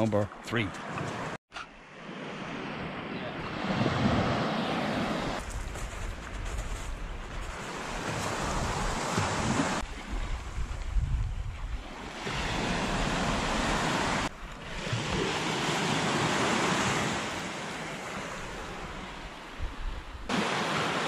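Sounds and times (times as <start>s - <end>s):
surf washing up a beach: 1.9s - 5.4s, 7.3s - 21.0s
wind buffeting microphone: 3.4s - 14.3s.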